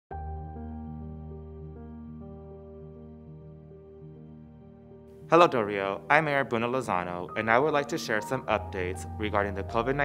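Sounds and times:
soft slow background music: 0:00.1 - 0:10.0.

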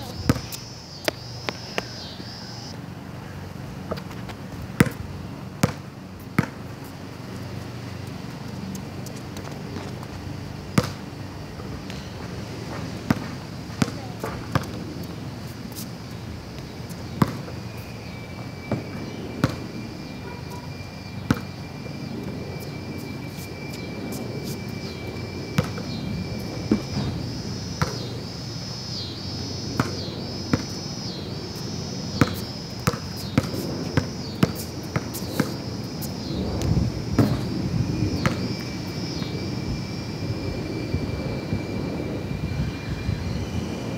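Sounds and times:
basketball bouncing on concrete: 0:00.0 - 0:02.0, 0:03.9 - 0:06.7, 0:10.7 - 0:11.0, 0:12.8 - 0:14.8, 0:16.6 - 0:17.6, 0:18.7 - 0:19.6, 0:25.6 - 0:26.0, 0:27.8 - 0:28.1, 0:29.8 - 0:30.8, 0:31.6 - 0:35.6, 0:37.2 - 0:37.5, 0:38.2 - 0:38.6.

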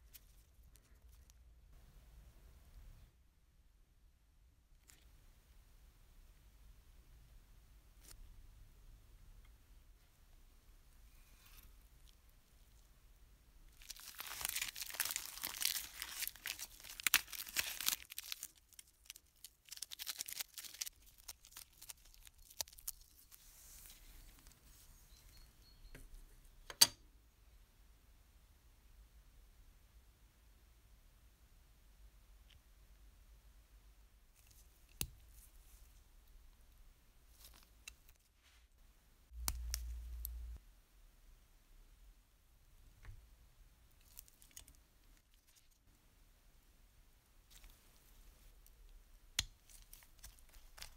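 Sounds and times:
masking tape tearing and crinkling: 0:13.8 - 0:23.3.

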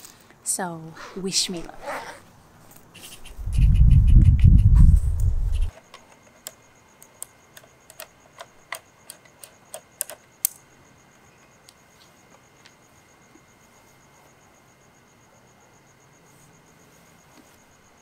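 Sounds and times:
crickets chirping: 0:00.0 - 0:18.0
low rumble: 0:03.5 - 0:05.7
laptop keys clicking: 0:06.4 - 0:10.6.

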